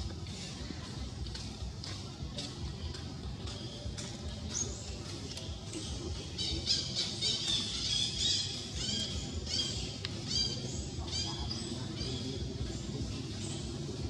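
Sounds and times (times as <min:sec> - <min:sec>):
high-pitched squeaky calls: 0:04.5 - 0:12.5.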